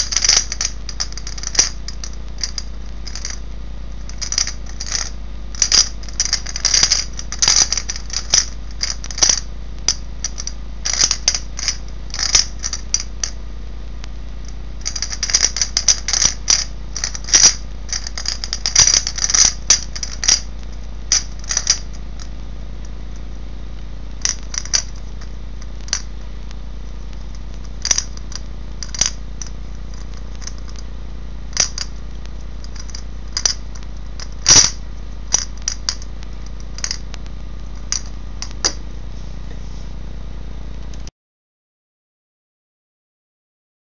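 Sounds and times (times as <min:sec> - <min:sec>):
plastic puzzle clicking and rattling: 0:00.0 - 0:03.4, 0:04.1 - 0:13.4, 0:14.8 - 0:22.0, 0:24.2 - 0:26.1, 0:27.2 - 0:30.8, 0:31.5 - 0:31.9, 0:32.6 - 0:37.1, 0:37.8 - 0:38.8
low hum: 0:00.0 - 0:41.1.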